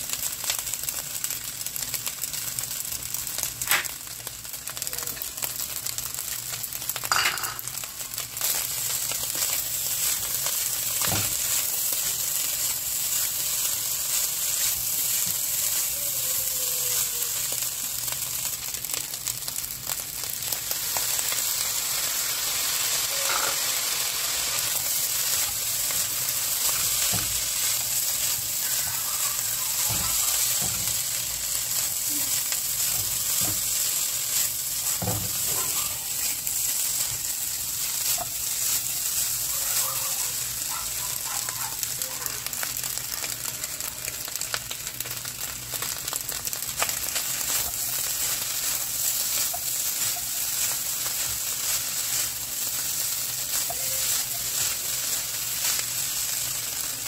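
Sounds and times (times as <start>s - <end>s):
rice sizzling in a frying pan: 0.0s - 57.0s.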